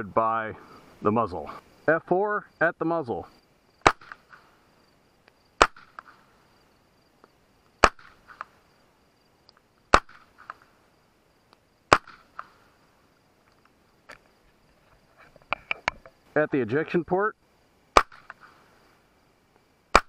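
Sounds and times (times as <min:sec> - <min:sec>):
suppressed gunshots: 0:03.8 - 0:04.6, 0:05.6 - 0:06.3, 0:07.8 - 0:08.6, 0:09.9 - 0:10.7, 0:11.9 - 0:12.7, 0:17.9 - 0:18.7
faint ticks: 0:09.4 - 0:09.7.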